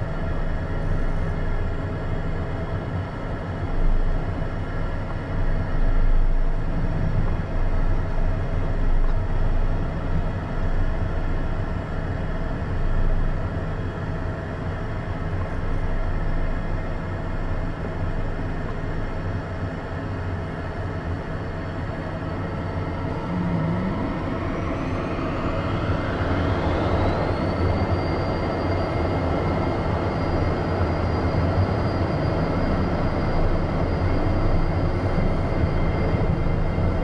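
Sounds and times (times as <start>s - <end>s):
jet engines humming and whining: 0.0s - 37.0s
low rumble: 22.8s - 26.2s.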